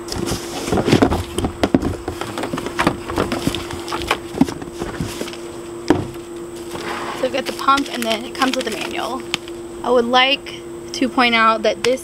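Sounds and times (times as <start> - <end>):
cardboard box knocking and scraping: 0.0 - 7.3
steady hum: 0.0 - 12.0.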